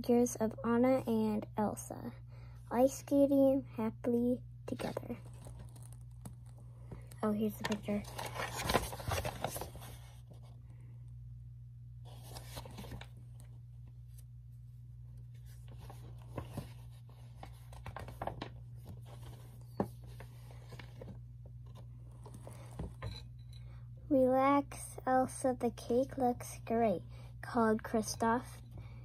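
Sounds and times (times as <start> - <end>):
book pages turning: 4.7 - 10.6, 12.1 - 14.3, 15.2 - 23.1.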